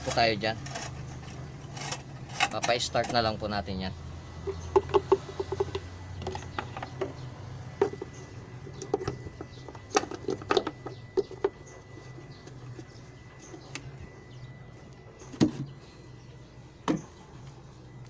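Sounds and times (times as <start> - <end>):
steady low hum: 0.0 - 18.0
taps and knocks: 4.5 - 7.2.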